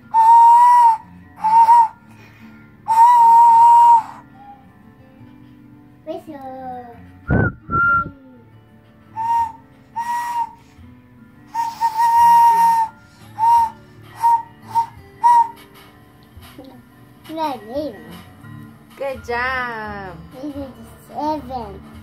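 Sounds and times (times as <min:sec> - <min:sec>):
plastic whistle toots: 0:00.1 - 0:02.0, 0:02.9 - 0:04.2, 0:07.3 - 0:08.1, 0:09.2 - 0:10.7, 0:11.5 - 0:15.8.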